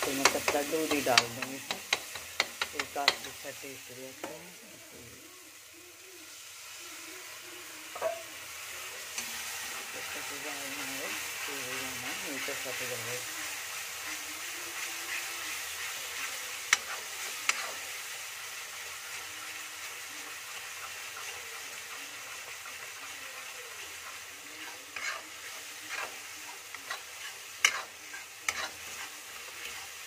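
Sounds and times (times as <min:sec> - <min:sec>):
spatula stirring and scraping: 0:00.0 - 0:03.6, 0:13.5 - 0:30.0
gravy sizzling: 0:00.0 - 0:30.0
spatula knocking against pan: 0:00.1 - 0:03.3.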